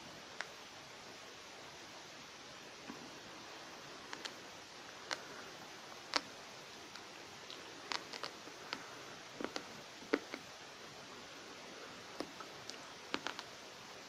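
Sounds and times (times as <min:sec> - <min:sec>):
dry pasta crunching: 0:07.5 - 0:09.6.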